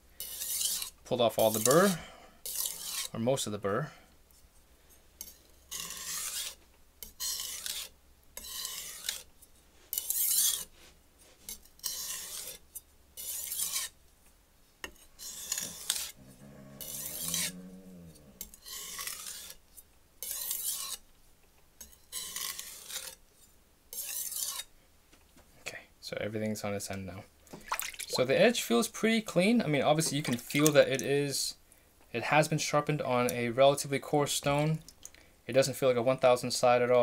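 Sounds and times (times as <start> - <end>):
knife scraping on whetstone: 0.2 - 3.2, 5.2 - 9.3, 9.9 - 14.0, 14.8 - 21.0, 21.8 - 23.2, 23.9 - 24.7, 29.9 - 31.1.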